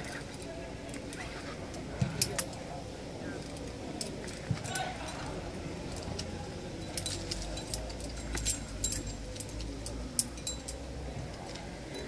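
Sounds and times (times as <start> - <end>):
carabiners jangling: 0.0 - 12.0.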